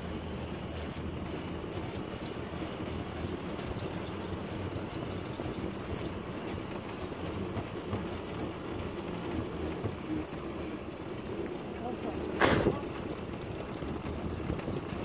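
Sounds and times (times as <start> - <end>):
motorcycle engine and road noise: 0.0 - 15.0.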